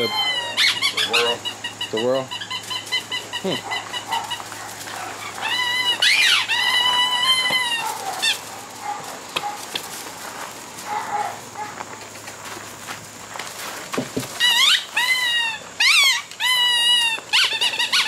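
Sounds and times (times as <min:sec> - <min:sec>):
puppy squeaks: 0:00.0 - 0:04.4, 0:05.3 - 0:08.4, 0:14.4 - 0:18.0
puppy squealing: 0:00.0 - 0:09.6, 0:14.4 - 0:18.0.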